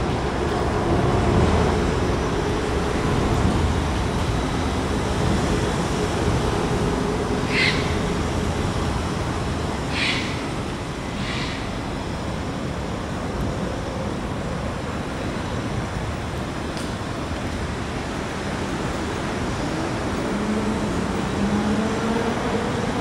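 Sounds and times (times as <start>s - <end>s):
city traffic rumble: 0.0s - 23.0s.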